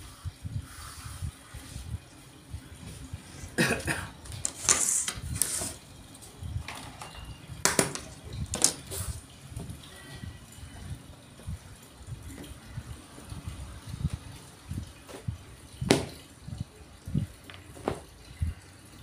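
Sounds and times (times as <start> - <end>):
cloth rubbing on tabletop: 0.0 - 1.9.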